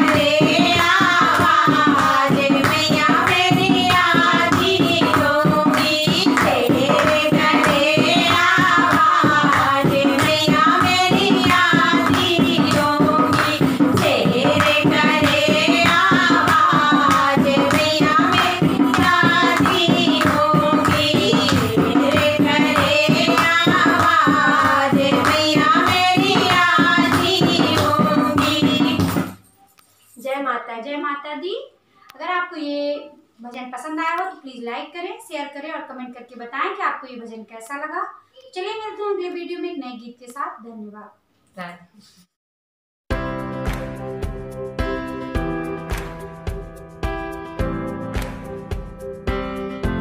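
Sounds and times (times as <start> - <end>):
women singing together: 0.0 - 29.3
rhythmic hand claps: 0.0 - 29.5, 43.2 - 49.5.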